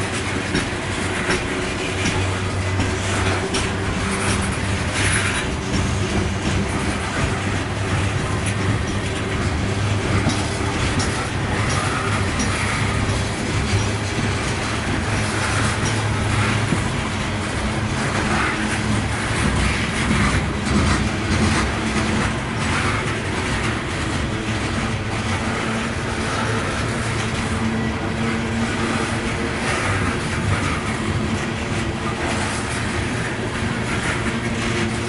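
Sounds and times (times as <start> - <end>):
steel wheels rumbling on rail: 0.0 - 35.0
train cars clicking and clanking: 0.0 - 35.0.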